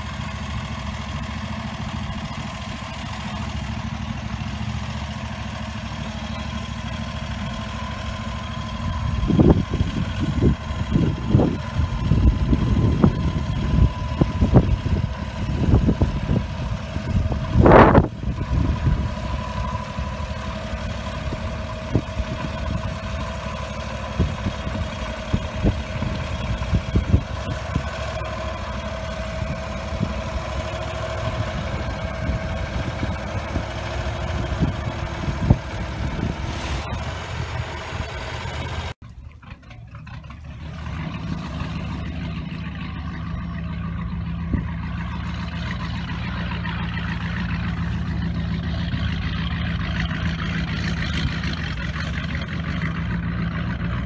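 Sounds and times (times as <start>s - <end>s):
boat engine running: 0.0s - 54.0s
wind buffeting microphone: 8.6s - 37.8s, 42.8s - 53.4s.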